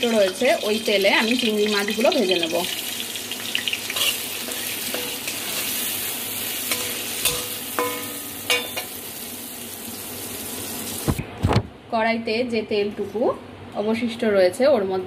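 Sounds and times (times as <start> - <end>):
prawns sizzling in oil: 0.0 - 11.2
metal spatula clinking on pan: 6.7 - 8.9.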